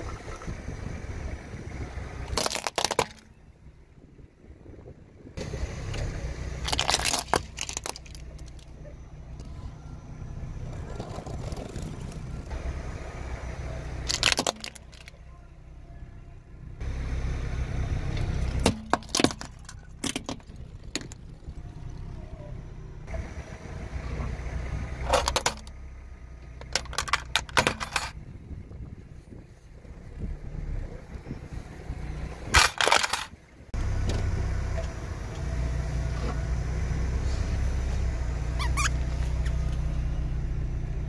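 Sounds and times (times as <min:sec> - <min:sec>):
car rumbling: 0:00.0 - 0:41.0
plastic toys cracking under tyres: 0:02.2 - 0:03.3, 0:06.6 - 0:08.8, 0:14.0 - 0:15.2, 0:18.5 - 0:21.3, 0:25.0 - 0:25.7, 0:26.6 - 0:28.2, 0:32.5 - 0:33.4.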